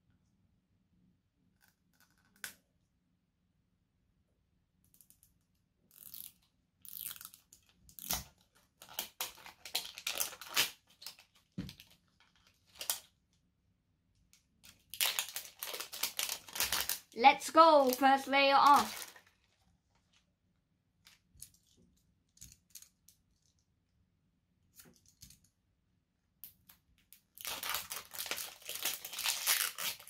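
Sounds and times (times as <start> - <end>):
plastic wrapper crinkling and tearing: 6.0 - 13.2, 14.6 - 20.2, 27.1 - 30.0.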